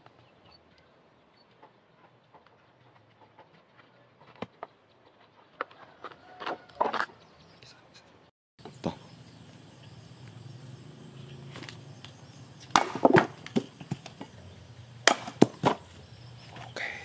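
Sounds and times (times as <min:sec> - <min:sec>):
axe chopping wooden blocks: 0:12.6 - 0:14.4, 0:15.0 - 0:15.9.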